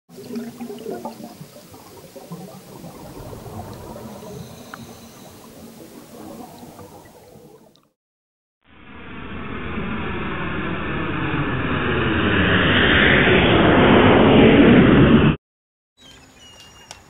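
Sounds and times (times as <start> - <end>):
underwater air bubbles crackling: 0.1 - 8.0.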